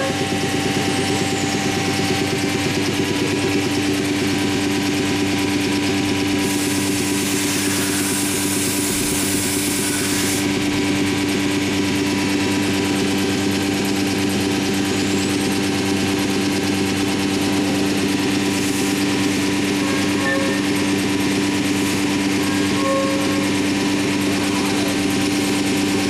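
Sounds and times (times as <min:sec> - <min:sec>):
cnc router hum: 0:00.0 - 0:26.0
bright machine hiss: 0:06.4 - 0:10.5.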